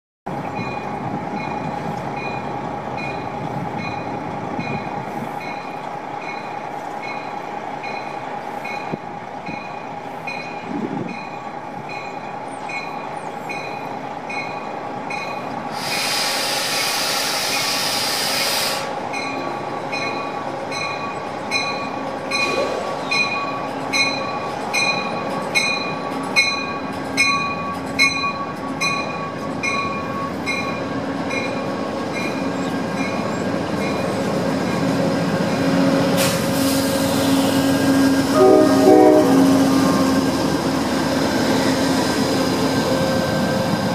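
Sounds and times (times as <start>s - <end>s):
train bell ringing: 0.3s - 15.6s, 19.1s - 34.9s, 38.3s - 40.4s
train rolling slowly: 0.3s - 43.9s
hiss of air: 15.7s - 19.1s, 36.0s - 38.1s.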